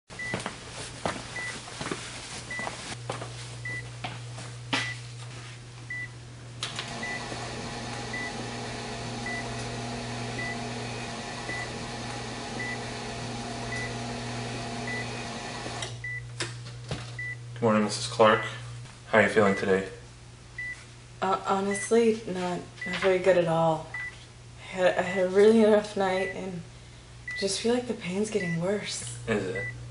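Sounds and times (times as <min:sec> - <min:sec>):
low electrical hum: 0:00.2 - 0:29.9
machine whir: 0:06.6 - 0:16.0
patient monitor beeping: 0:06.8 - 0:13.0, 0:13.6 - 0:14.2, 0:14.8 - 0:16.2, 0:17.2 - 0:17.4.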